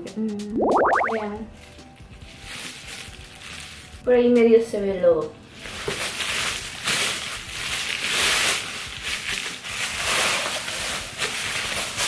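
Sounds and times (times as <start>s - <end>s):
bubble wrap crinkling: 1.5s - 4.1s, 5.5s - 12.0s.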